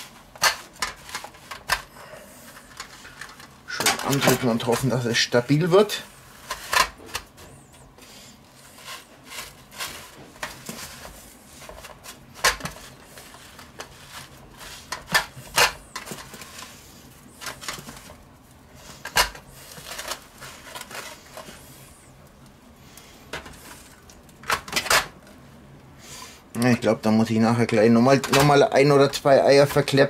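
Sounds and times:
breadcrumbs crunching and rustling: 7.6s - 22.4s.

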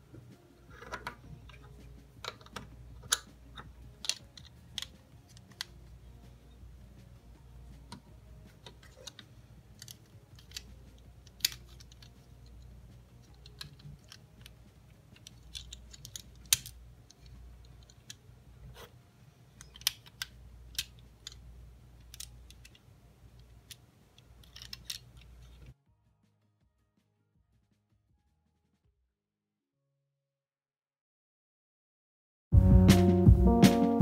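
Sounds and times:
plastic bricks clicking: 8.6s - 12.6s, 15.2s - 18.2s, 24.4s - 25.7s.

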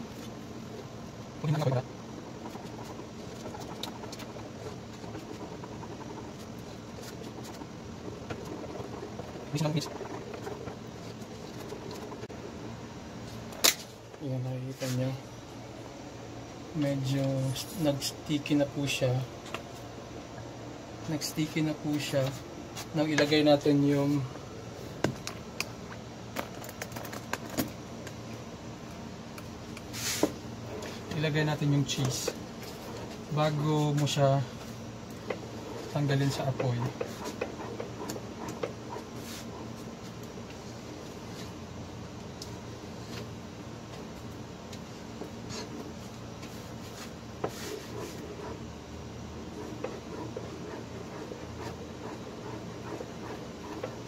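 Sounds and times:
utensil stirring and scraping pot: 2.2s - 12.3s, 35.2s - 39.8s, 46.7s - 48.8s, 49.4s - 54.0s.

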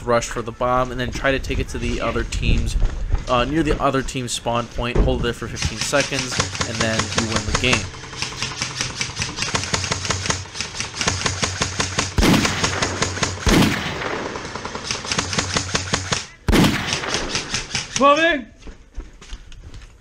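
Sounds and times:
loud thumps: 4.8s - 18.2s
airsoft rifles firing full-auto: 5.6s - 18.2s.

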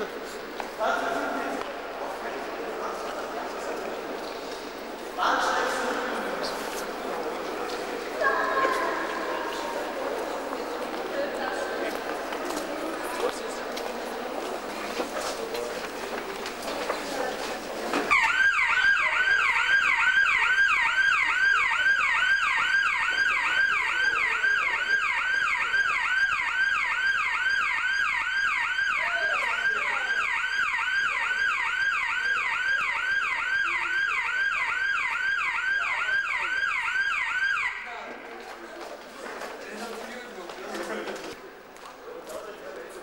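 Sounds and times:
electronic warbling alarm: 18.1s - 37.9s.

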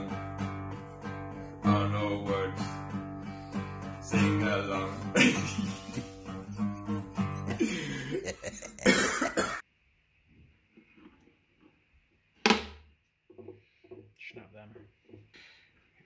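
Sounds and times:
strummed acoustic guitar: 0.0s - 8.2s.

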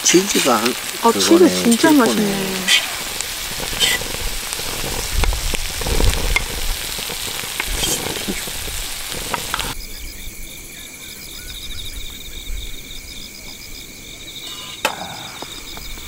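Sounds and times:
food sizzling in a pan: 0.0s - 10.2s
insects chirping: 0.0s - 16.0s.

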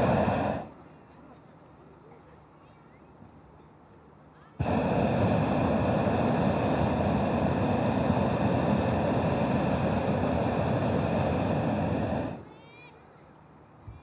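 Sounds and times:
propane burner blasting: 0.0s - 0.8s, 4.6s - 12.5s.

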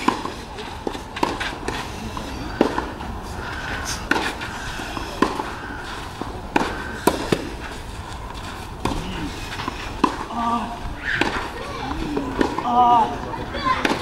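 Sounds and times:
tennis ball struck by rackets: 0.0s - 1.8s, 2.6s - 3.1s, 4.0s - 10.4s, 11.1s - 12.7s
crowd murmur: 0.0s - 14.0s.

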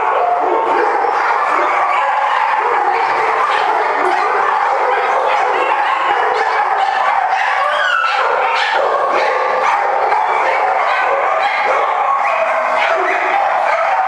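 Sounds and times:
many dogs barking: 0.0s - 14.0s.

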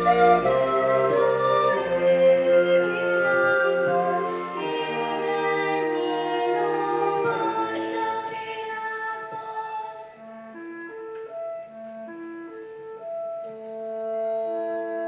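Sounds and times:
children's choir singing in harmony: 0.0s - 10.4s.

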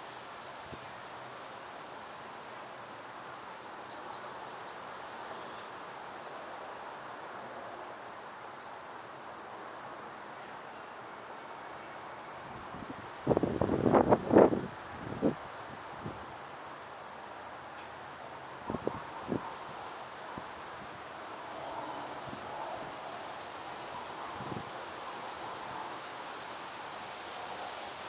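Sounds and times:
crickets trilling: 0.0s - 28.0s
soft outdoor rush: 0.0s - 28.0s.

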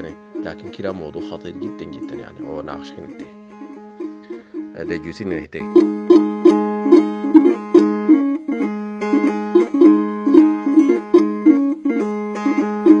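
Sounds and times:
plucked string instrument: 0.0s - 13.0s.

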